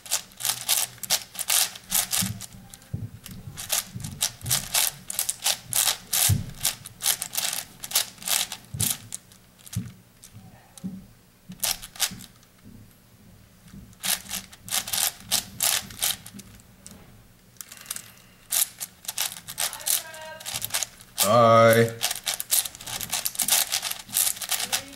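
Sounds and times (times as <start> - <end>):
puzzle cube clicking: 17.6 - 24.9.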